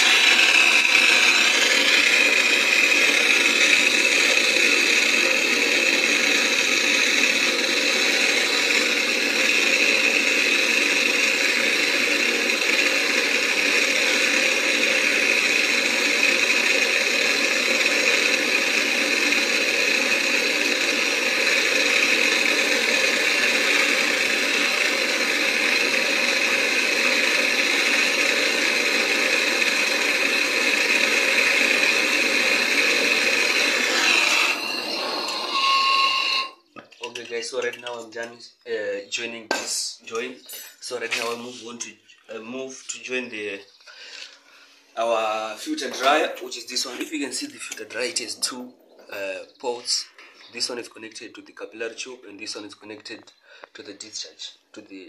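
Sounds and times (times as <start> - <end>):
gas torch flame hissing: 0.0 - 36.6, 44.0 - 50.8.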